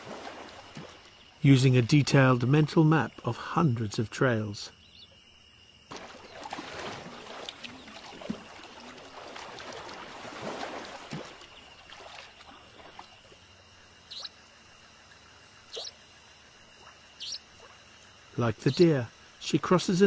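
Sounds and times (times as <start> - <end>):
water sloshing and splashing: 0.0 - 1.4, 5.9 - 18.1
insect drone: 0.0 - 20.0.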